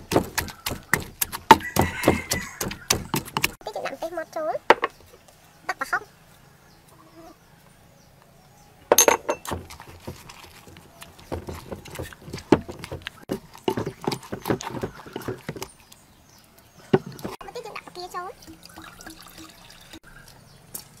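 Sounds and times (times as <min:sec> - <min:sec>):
wooden pestle pounding in mortar: 0:00.0 - 0:03.6, 0:09.3 - 0:15.7, 0:17.0 - 0:17.4.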